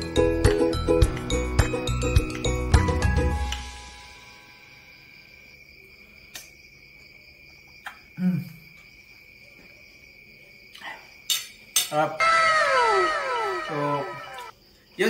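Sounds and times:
high-pitched whine: 12.2s - 14.5s.

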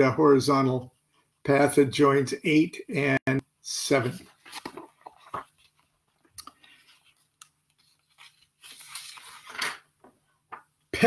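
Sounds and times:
paper rustling: 4.1s - 9.9s
crackles and taps handling book: 4.5s - 7.9s.

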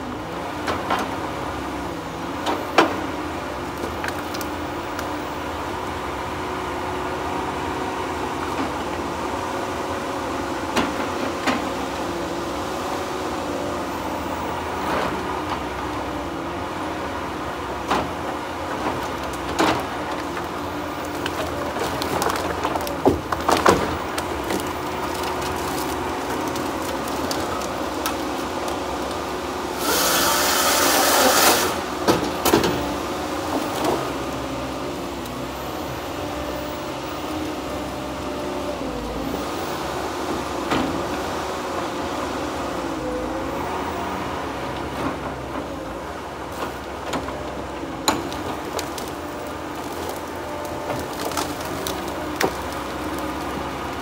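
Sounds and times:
loader engine and hydraulics: 0.0s - 54.0s
logs knocking together: 17.9s - 29.2s.

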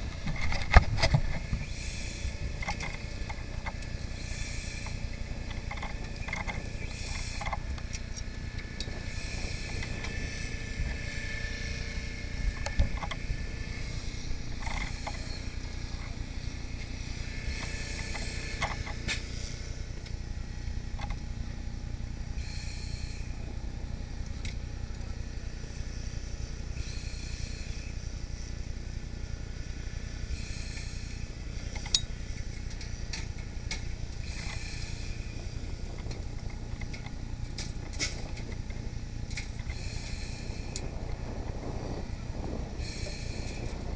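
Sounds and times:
fire truck engine rumbling: 0.0s - 43.9s
short hisses: 22.4s - 23.4s.

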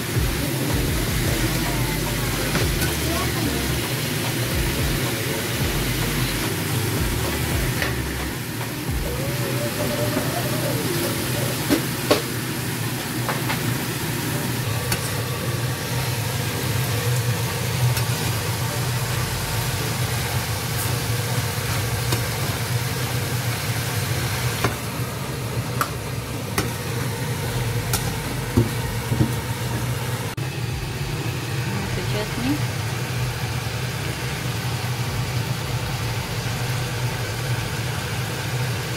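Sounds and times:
steady low hum: 0.0s - 11.5s, 24.6s - 38.4s.

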